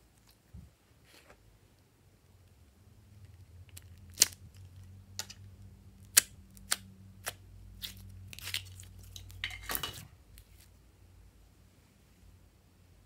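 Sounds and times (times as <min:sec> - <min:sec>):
low steady hum: 0:00.0 - 0:13.0
slime popping and squelching: 0:03.7 - 0:04.8.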